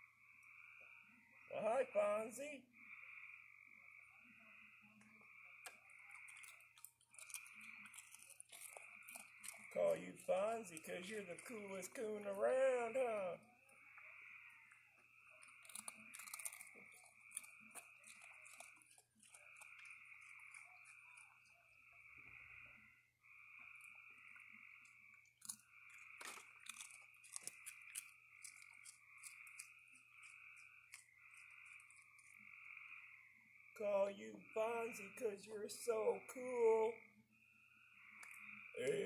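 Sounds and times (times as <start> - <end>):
trilling frog chorus: 0.0 - 39.0
raccoon crunching dry snacks: 5.6 - 13.2, 14.6 - 21.8, 24.8 - 32.4.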